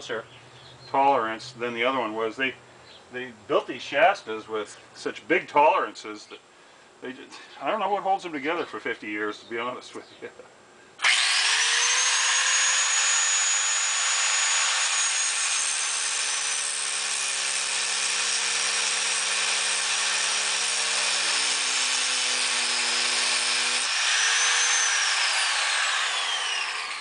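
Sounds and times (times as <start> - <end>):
angle grinder grinding metal: 11.0 - 27.0.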